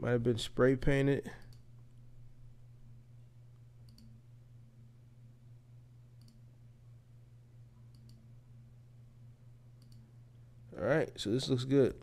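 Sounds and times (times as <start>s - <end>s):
low hum: 0.0s - 12.0s
faint computer mouse clicks: 3.8s - 4.2s, 6.2s - 6.4s, 7.9s - 8.2s, 9.8s - 10.1s.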